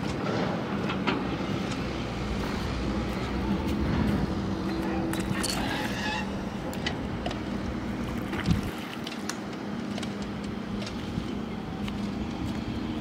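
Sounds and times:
open-air background noise: 0:00.0 - 0:13.0.

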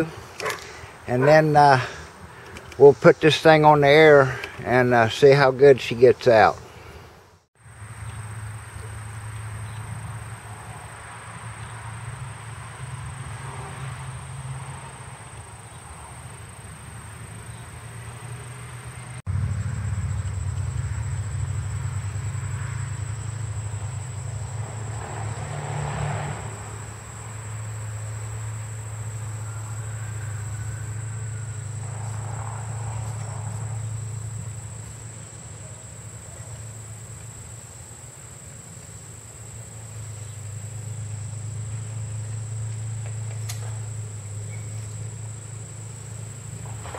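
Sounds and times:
insects trilling: 0:07.6 - 0:46.9
steady low hum: 0:19.2 - 0:25.2.

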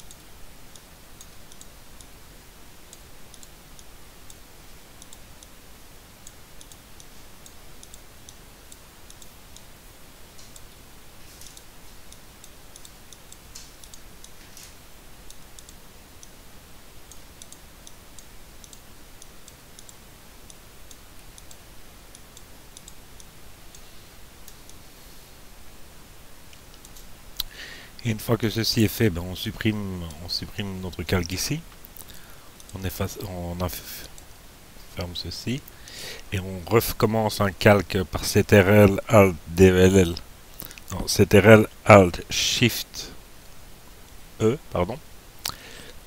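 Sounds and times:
computer mouse clicking: 0:00.0 - 0:02.1, 0:02.9 - 0:04.4, 0:05.0 - 0:05.5, 0:06.2 - 0:09.7, 0:11.4 - 0:16.4, 0:17.1 - 0:23.8
steady background hiss: 0:00.0 - 0:46.0.

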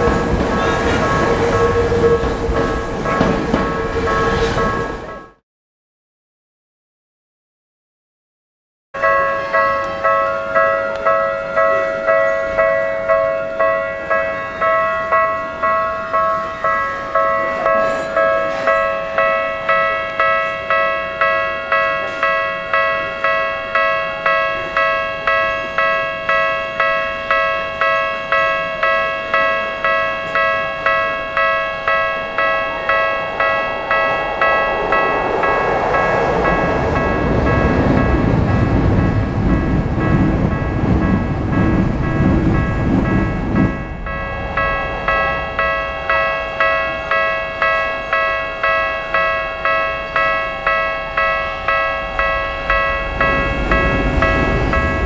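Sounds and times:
level crossing warning bell: 0:00.0 - 0:05.4, 0:09.0 - 0:55.0.

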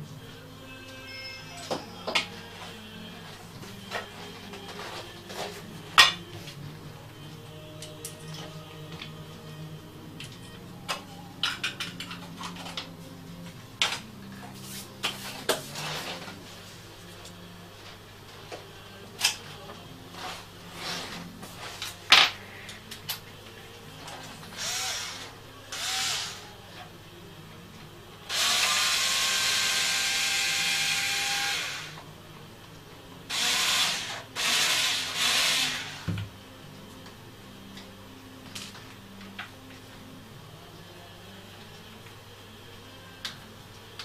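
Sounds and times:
cordless screwdriver whining: 0:24.6 - 0:26.4, 0:33.3 - 0:36.0.

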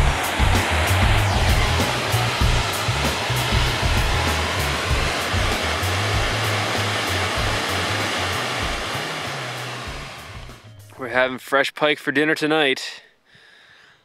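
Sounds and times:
waterfall roaring: 0:00.0 - 0:10.4
background music with bass: 0:00.0 - 0:11.3.

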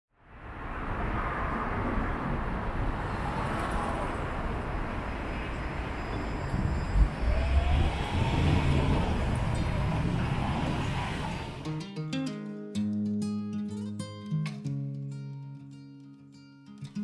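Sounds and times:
vehicle engine and road noise: 0:00.2 - 0:11.8.

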